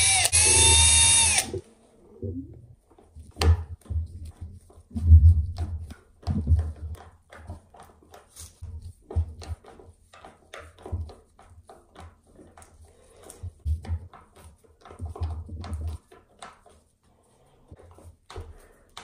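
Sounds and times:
knocks taps and thumps: 0:03.2 - 0:12.7.

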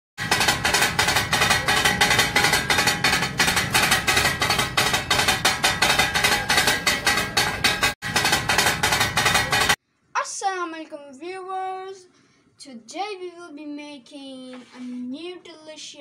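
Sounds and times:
percussive music with fast beat: 0:00.2 - 0:09.8.

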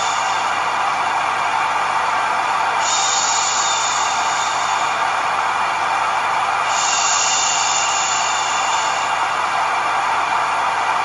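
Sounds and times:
rain hiss: 0:02.8 - 0:05.1, 0:06.7 - 0:09.4.

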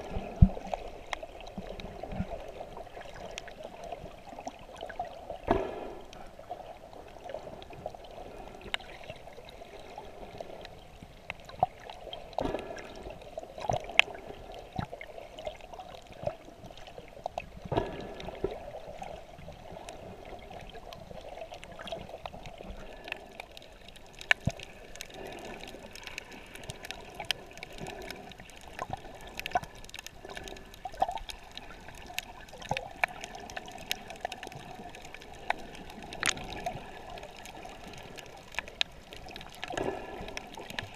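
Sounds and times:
muffled underwater gurgling: 0:00.0 - 0:40.9
underwater clicks and pops: 0:24.2 - 0:37.6.

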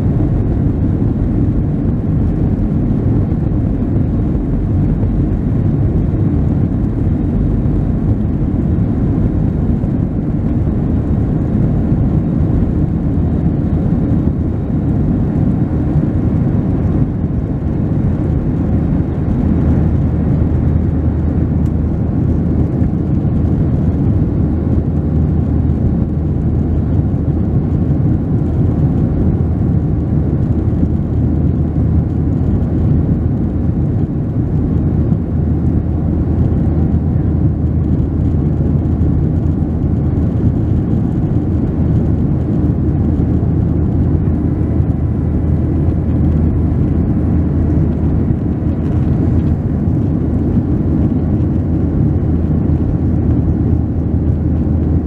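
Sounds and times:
airplane cabin engine drone: 0:00.0 - 0:55.0.

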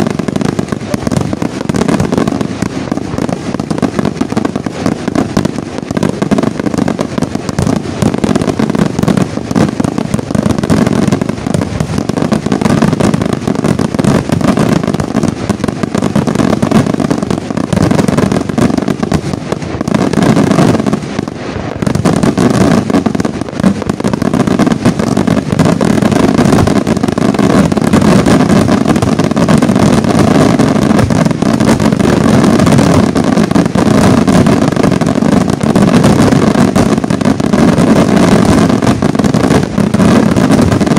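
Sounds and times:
fireworks bangs and crackles: 0:00.0 - 0:40.9.

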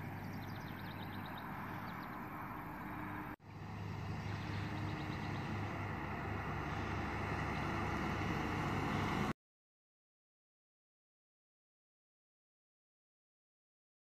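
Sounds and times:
car engine and tyre noise: 0:00.0 - 0:09.4.

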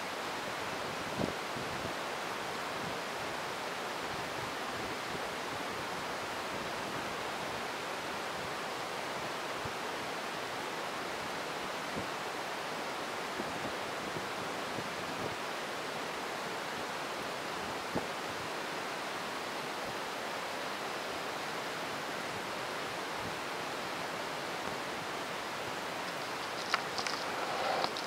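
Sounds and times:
heavy rain hissing: 0:23.2 - 0:28.0.

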